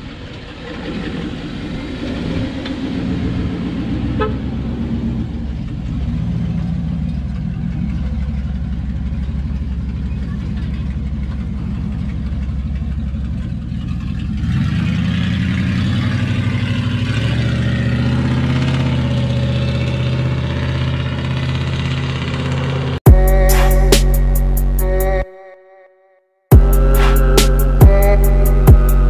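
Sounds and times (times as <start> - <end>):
truck engine idling and revving: 0.0 - 25.2, 26.5 - 29.0
outro music: 23.0 - 29.0.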